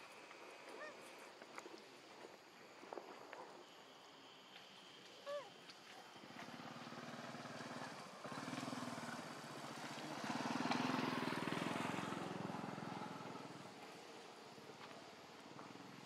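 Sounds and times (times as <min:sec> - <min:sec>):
vehicle engine passing by: 0:06.1 - 0:14.2.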